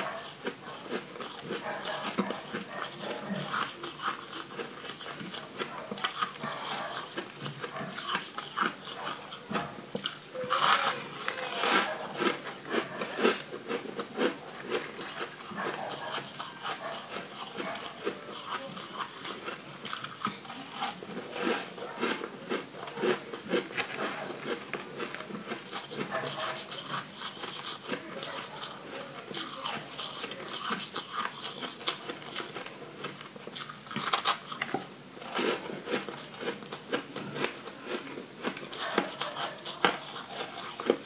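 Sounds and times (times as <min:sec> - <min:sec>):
crunching frozen ice: 0:10.0 - 0:41.0.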